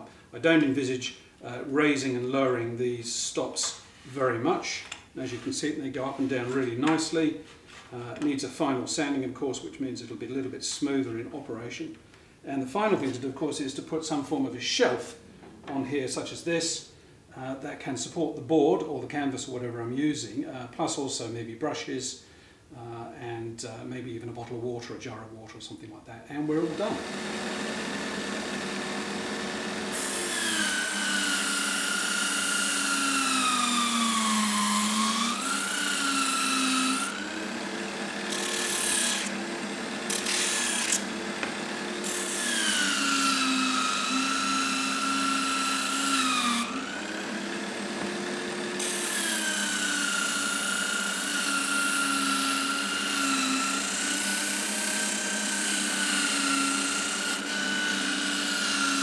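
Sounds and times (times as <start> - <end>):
abrasive grinding wood: 26.4 - 59.0
sanding disc motor whine: 26.6 - 59.0.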